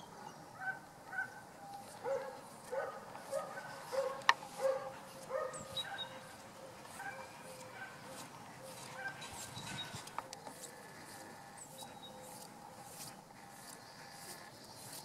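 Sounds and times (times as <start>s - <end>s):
dog barking: 0.6s - 1.4s, 2.0s - 9.4s.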